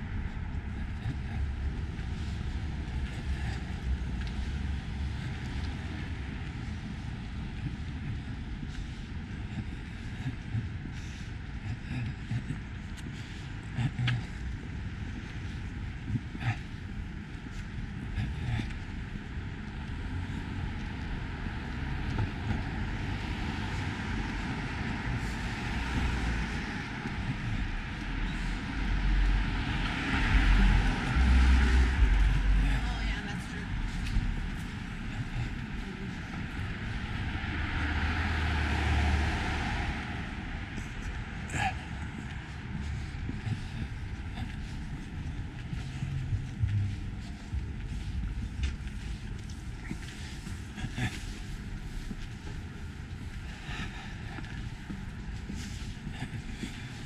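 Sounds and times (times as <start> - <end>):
distant traffic rumble: 0.0 - 57.0
car driving past: 36.6 - 41.4
wind on microphone: 42.3 - 49.8.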